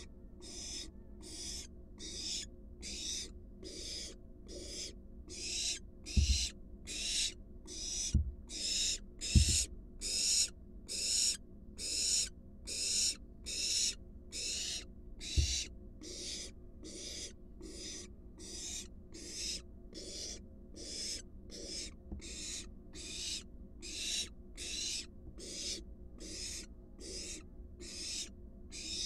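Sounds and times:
owl chick rasping hisses: 0.0s - 29.0s
dull thumps on wooden box: 6.1s - 6.5s, 8.1s - 8.4s, 9.3s - 9.7s, 15.4s - 15.7s.

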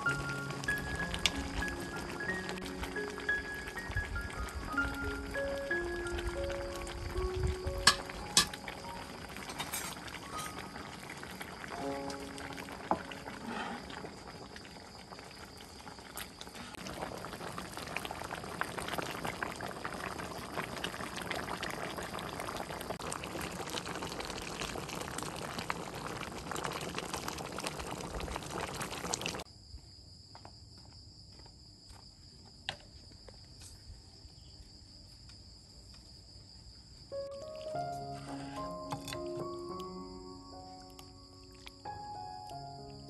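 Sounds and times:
soup boiling and bubbling: 0.0s - 29.5s, 37.3s - 43.0s
crickets chirping: 0.0s - 43.0s.

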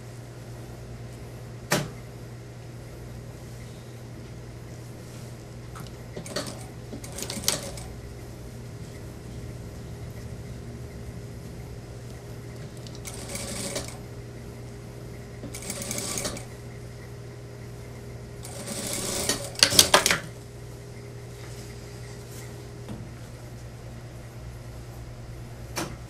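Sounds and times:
steady low hum: 0.0s - 26.0s
sewing machine clacks: 5.8s - 7.9s, 12.6s - 14.0s, 15.4s - 16.5s, 18.4s - 20.3s
sewing machine stitching: 5.8s - 7.9s, 12.6s - 14.1s, 15.4s - 16.5s, 18.4s - 20.3s.

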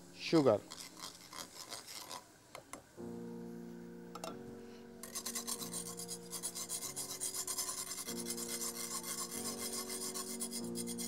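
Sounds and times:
utensil scraping frying pan: 0.4s - 2.3s, 5.0s - 11.0s.

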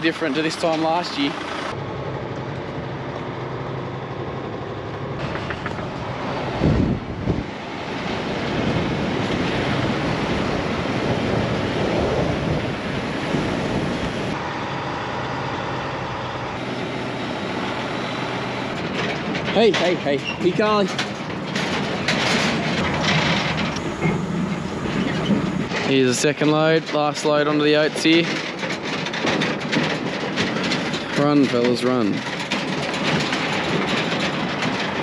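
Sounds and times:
truck engine running: 0.0s - 35.0s
truck body and crate rattling: 5.1s - 13.9s, 16.5s - 35.0s.

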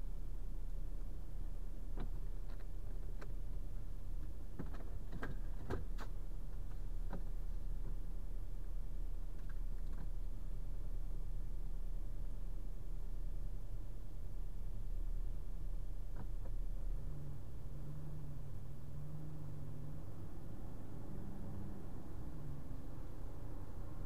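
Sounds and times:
light clicks and knocks: 1.9s - 8.1s, 9.3s - 10.2s, 16.1s - 16.6s.

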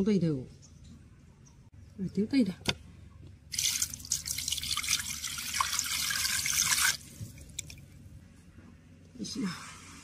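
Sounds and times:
water pouring into clay pot: 3.5s - 7.7s.

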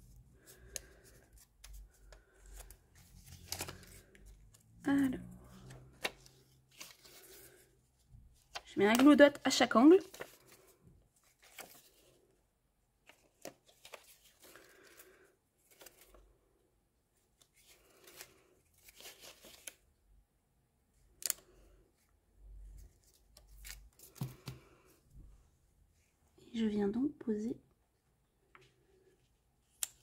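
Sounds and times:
paper rustling: 0.4s - 4.6s, 5.5s - 7.7s, 8.3s - 12.2s, 13.0s - 16.3s, 17.4s - 19.8s.

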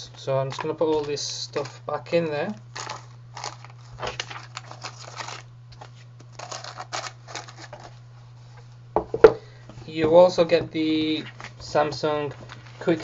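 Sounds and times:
plastic crinkling: 0.5s - 8.0s.

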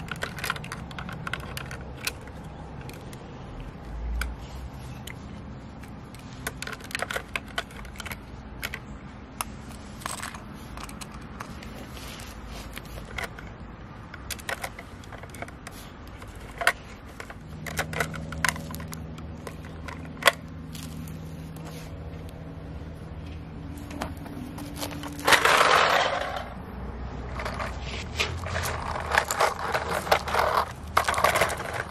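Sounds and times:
toy parts clicking and tapping: 0.0s - 22.3s, 23.2s - 26.6s, 27.3s - 31.9s
rushing scrape: 24.6s - 31.9s.

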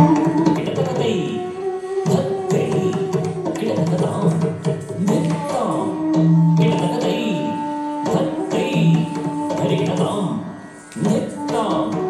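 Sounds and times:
hand drum strokes: 2.0s - 7.2s, 10.8s - 12.0s.

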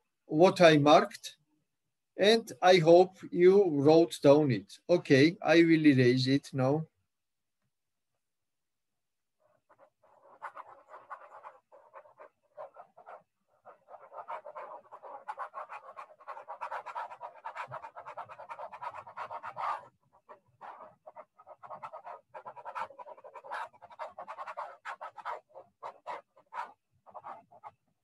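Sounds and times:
stylus scrubbing on tablet: 9.4s - 28.0s.

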